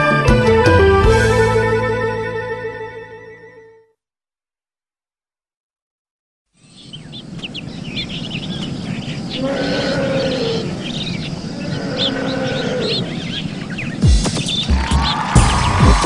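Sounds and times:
birds chirping rapidly: 6.6 - 16.0
low drawn-out bird call: 8.0 - 13.6.

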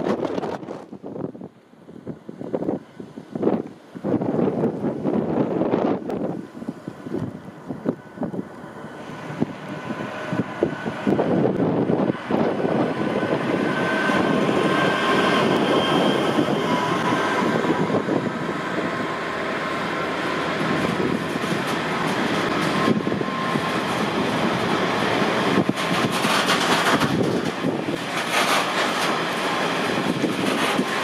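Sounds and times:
diesel locomotive passing: 0.0 - 31.0
train wagons clattering over rails: 8.8 - 31.0.

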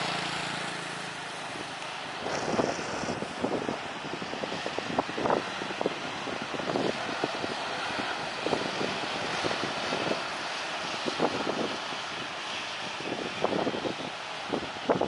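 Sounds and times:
rough engine bursts: 0.0 - 3.8
jet engines rushing: 0.0 - 15.0.

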